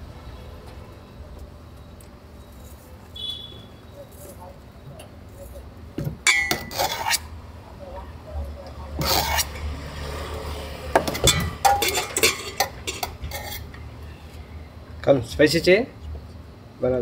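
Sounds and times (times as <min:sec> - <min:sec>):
metal spoon scraping a steel bowl: 0:06.3 - 0:07.3, 0:09.0 - 0:09.8, 0:11.1 - 0:13.7.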